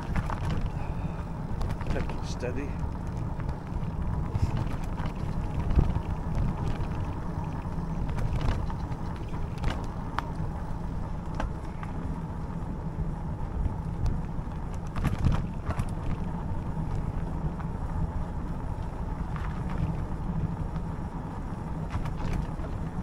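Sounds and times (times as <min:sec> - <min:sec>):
bike knocks and rattles: 0:00.0 - 0:00.9, 0:01.5 - 0:10.5, 0:14.1 - 0:17.8, 0:21.8 - 0:23.0
e-bike rumbling on rough lane: 0:00.0 - 0:23.0.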